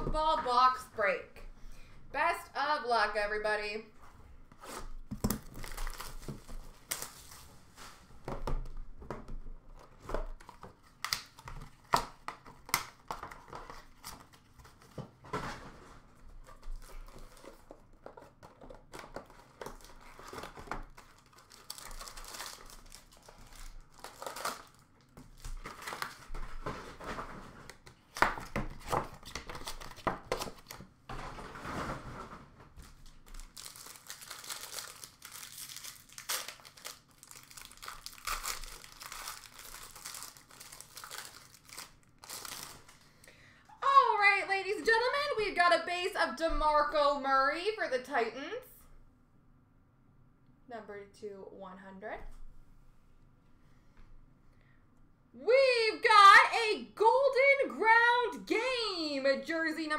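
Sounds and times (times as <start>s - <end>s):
packaging crinkling and tearing: 5.1s - 7.6s, 9.7s - 15.0s, 16.1s - 30.9s, 32.8s - 43.2s.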